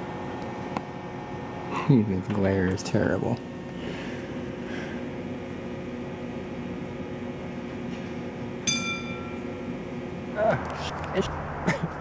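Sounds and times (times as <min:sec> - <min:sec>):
low mechanical hum with tones: 0:00.0 - 0:12.0
bright ringing tone: 0:08.6 - 0:09.6.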